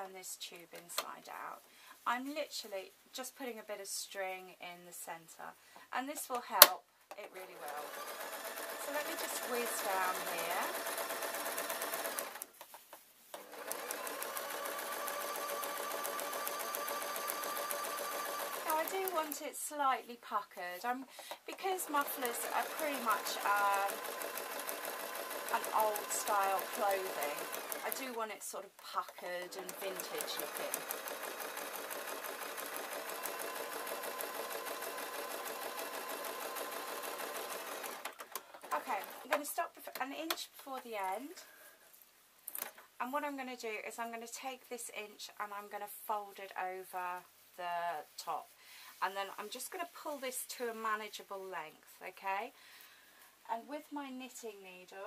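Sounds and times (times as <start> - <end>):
sewing machine stitching: 7.4 - 12.5, 13.3 - 19.4, 21.2 - 39.5.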